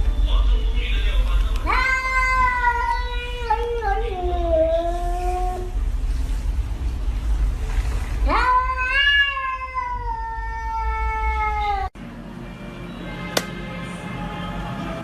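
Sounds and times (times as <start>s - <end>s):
cat meowing: 1.6s - 5.8s, 8.2s - 11.9s.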